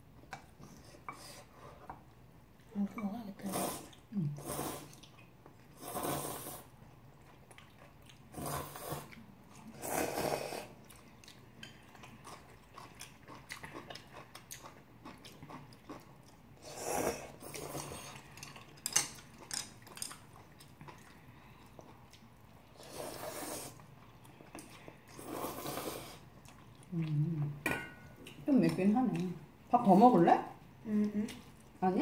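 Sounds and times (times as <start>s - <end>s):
noodles slurped: 3.4s - 6.8s, 24.7s - 26.6s
chewing: 4.8s - 5.8s, 6.9s - 9.8s, 10.6s - 16.6s, 17.3s - 29.4s.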